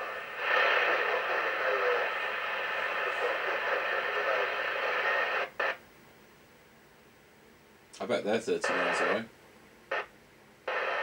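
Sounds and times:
radio static hiss: 0:00.0 - 0:05.9, 0:08.0 - 0:09.3, 0:09.9 - 0:11.0
faint radio voice: 0:00.4 - 0:05.4, 0:08.2 - 0:09.3.

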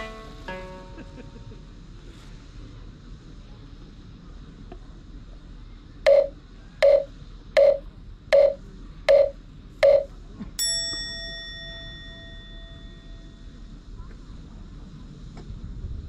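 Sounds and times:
struck bell ringing: 0:06.1 - 0:07.8, 0:08.4 - 0:13.2.

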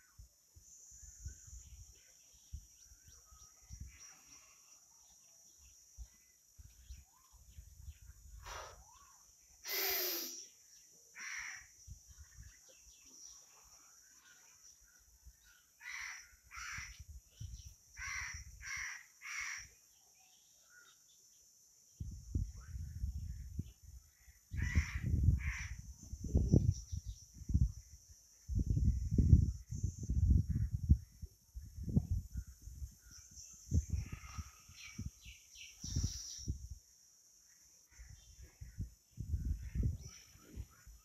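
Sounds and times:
crows cawing: 0:11.2 - 0:11.7, 0:15.8 - 0:17.0, 0:18.0 - 0:19.7, 0:24.6 - 0:25.8.

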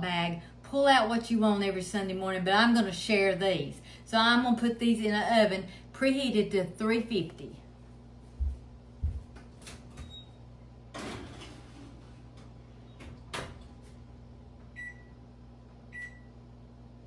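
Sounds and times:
steady low hum: 0:00.0 - 0:17.0
oven door opening: 0:09.6 - 0:12.1
oven door shutting: 0:09.6 - 0:12.1
baking sheet scraping and clattering: 0:10.9 - 0:12.5.

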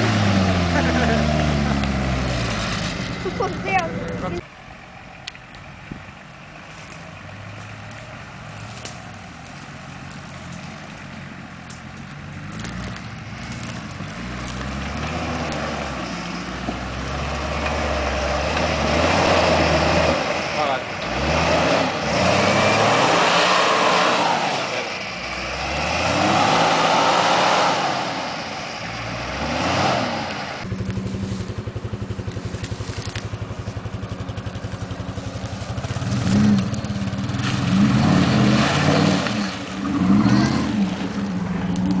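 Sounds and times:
off-road engine revving: 0:00.0 - 0:04.5, 0:06.5 - 0:42.0.

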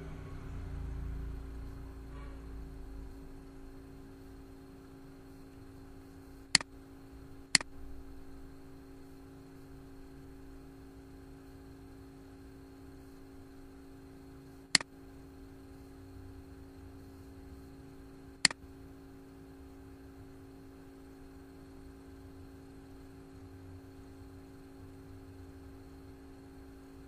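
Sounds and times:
low electrical hum: 0:00.0 - 0:27.0
computer mouse clicks: 0:07.5 - 0:07.7.

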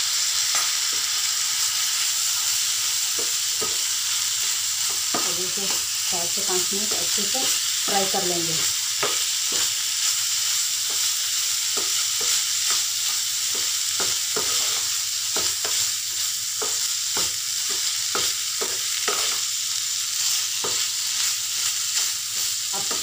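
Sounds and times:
meat sizzling in a pan: 0:00.0 - 0:23.0
spatula scraping a pan: 0:11.8 - 0:19.4.

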